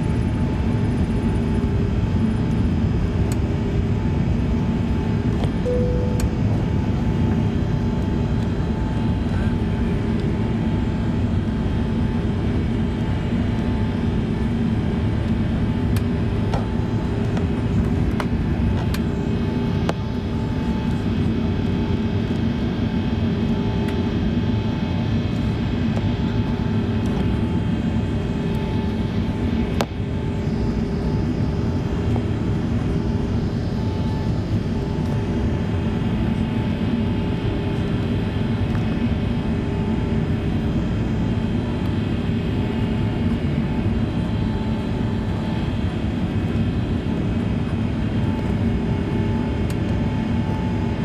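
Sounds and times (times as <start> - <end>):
jet engine and airflow noise: 0.0 - 51.0
faint steady tones: 5.6 - 9.8.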